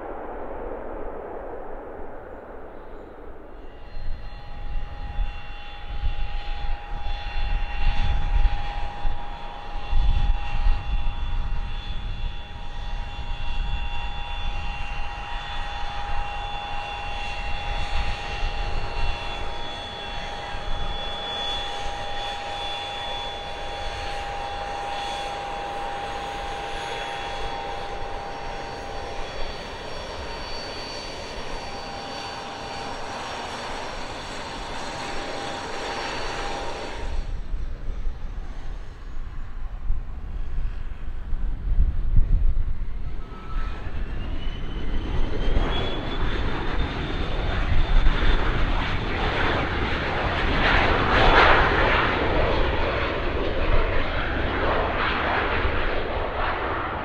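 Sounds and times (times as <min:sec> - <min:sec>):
deep rumble: 0:00.0 - 0:05.2
aircraft engines whining: 0:00.0 - 0:57.0.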